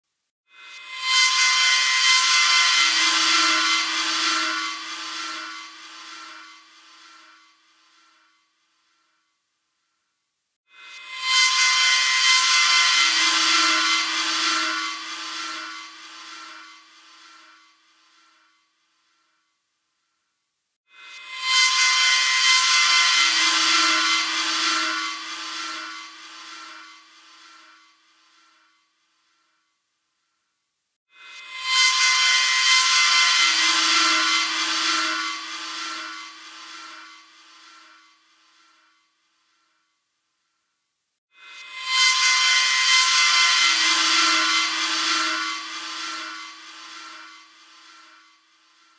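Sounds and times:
harsh metallic screeching: 0:00.6 - 0:08.2, 0:10.8 - 0:18.5, 0:21.0 - 0:28.6, 0:31.2 - 0:38.8, 0:41.4 - 0:48.9
grinding hiss: 0:31.6 - 0:38.8, 0:41.4 - 0:48.9.

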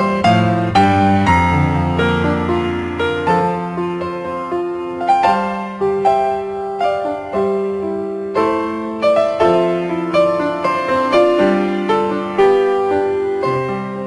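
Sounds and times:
soft piano music: 0:00.0 - 0:14.0.

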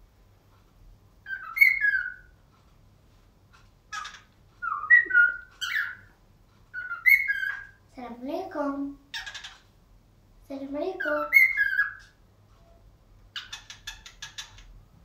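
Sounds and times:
harsh bird chirp: 0:01.2 - 0:02.4, 0:03.9 - 0:07.9, 0:09.0 - 0:09.8, 0:10.9 - 0:12.2, 0:13.3 - 0:14.8
cockatiel whistling: 0:01.3 - 0:02.3, 0:04.0 - 0:06.1, 0:06.7 - 0:07.8, 0:11.3 - 0:12.1.

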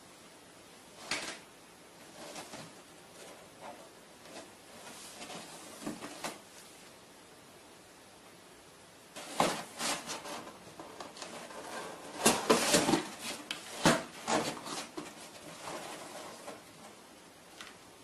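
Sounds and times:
cardboard box rustling and knocking: 0:09.2 - 0:16.7.

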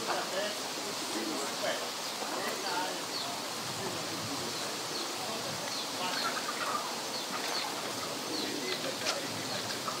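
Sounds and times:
steady outdoor hiss: 0:00.0 - 0:10.0
small birds chirping: 0:00.9 - 0:10.0.

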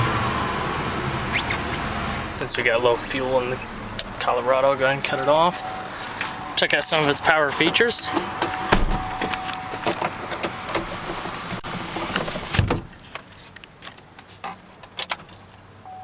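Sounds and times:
outside traffic noise: 0:00.0 - 0:16.0
car door shutting with a thump: 0:08.7 - 0:10.0, 0:12.4 - 0:12.9.

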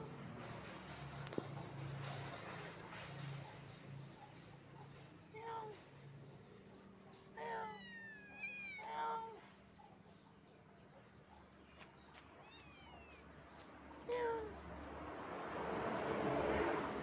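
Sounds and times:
kitten meowing: 0:07.6 - 0:09.3, 0:12.4 - 0:13.2.

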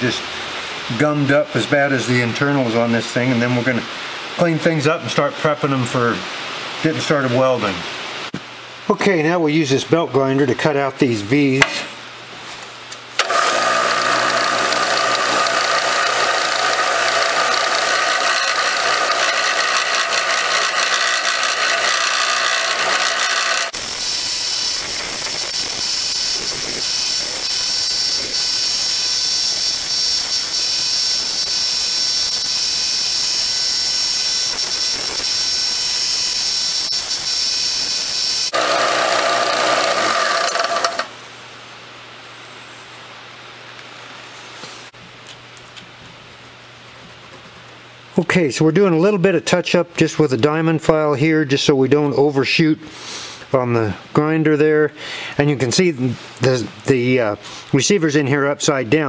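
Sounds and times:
belt grinder whining: 0:13.2 - 0:41.1
steel grinding hiss: 0:13.2 - 0:41.1.

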